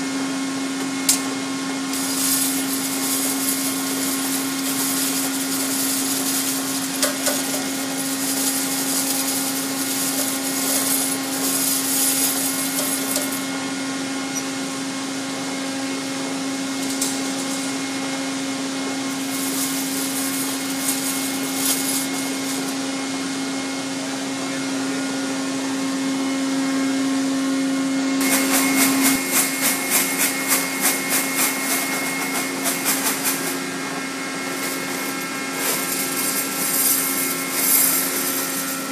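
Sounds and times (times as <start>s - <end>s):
workshop machinery hum: 0.0s - 38.9s.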